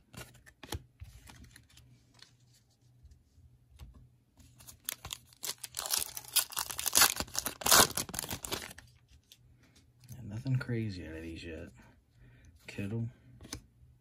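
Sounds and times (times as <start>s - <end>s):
foil pack tearing and crinkling: 4.9s - 8.8s.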